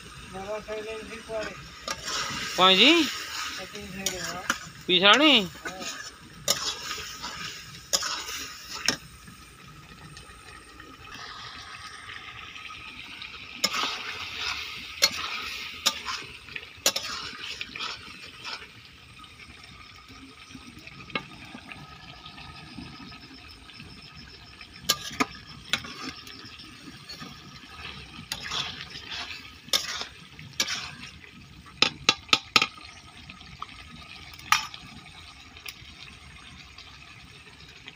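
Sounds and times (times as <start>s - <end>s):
curry simmering and bubbling: 0.0s - 37.9s
spatula scraping and clinking pan: 1.4s - 9.0s, 13.6s - 18.7s, 24.8s - 31.1s.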